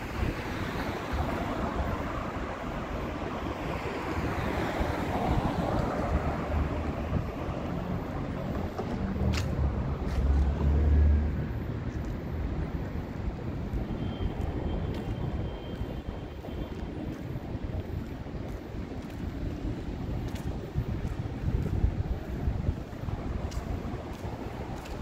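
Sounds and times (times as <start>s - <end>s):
passing vehicle rumble: 0.0s - 13.8s
road traffic noise: 0.0s - 25.0s.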